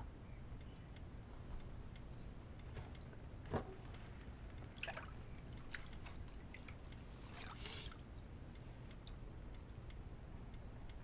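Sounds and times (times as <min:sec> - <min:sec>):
low steady hum: 0:00.0 - 0:11.0
water splashing and dripping: 0:04.6 - 0:08.3.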